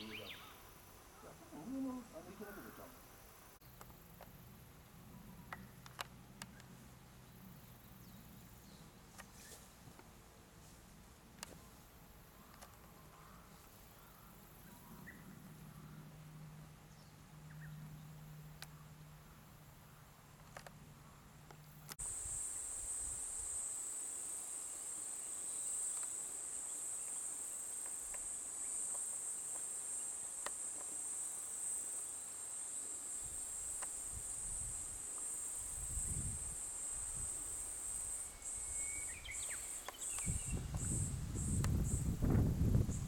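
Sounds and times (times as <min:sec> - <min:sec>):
insect trilling: 0:00.0 - 0:03.6, 0:22.0 - 0:42.3.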